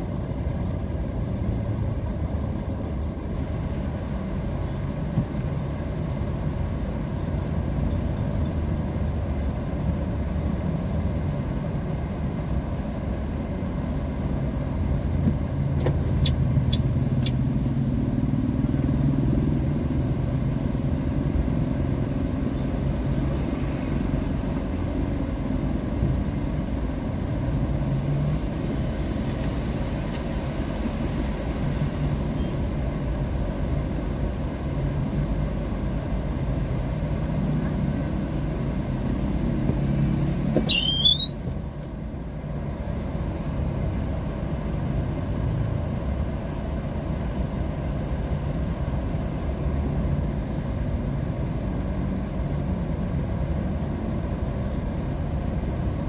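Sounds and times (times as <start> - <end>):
vehicle engines idling: 0.0 - 56.0
high-pitched squeals: 16.2 - 17.4, 40.7 - 41.4.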